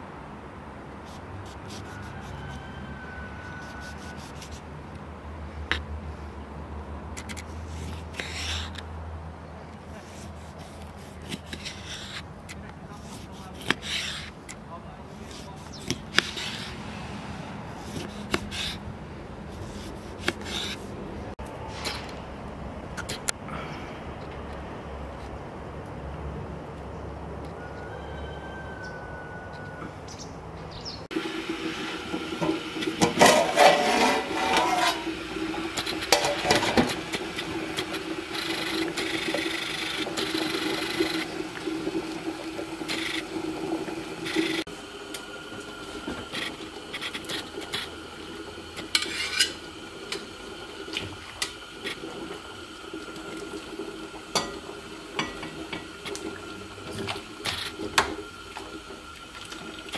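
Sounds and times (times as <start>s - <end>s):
water in a pot: 31.1s - 59.9s
metal utensils scraping pots: 31.8s - 41.4s, 48.8s - 50.3s, 54.3s - 56.2s.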